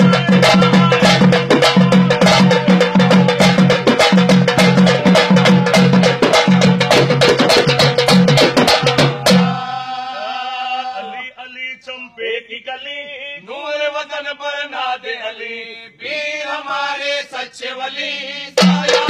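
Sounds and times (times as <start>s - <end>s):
person chanting: 0.0s - 6.9s, 9.1s - 16.4s
fast dense drum beat: 0.0s - 9.8s, 18.6s - 19.0s.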